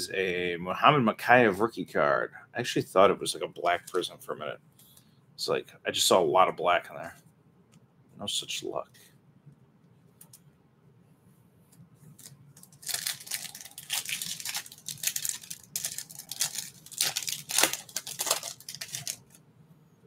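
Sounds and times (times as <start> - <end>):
foil pack tearing and crinkling: 12.2 - 19.4.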